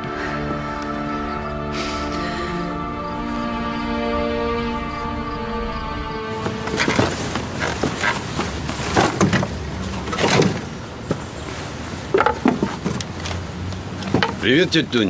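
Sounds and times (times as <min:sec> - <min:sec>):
wooden fence boards knocking: 0:12.1 - 0:13.0.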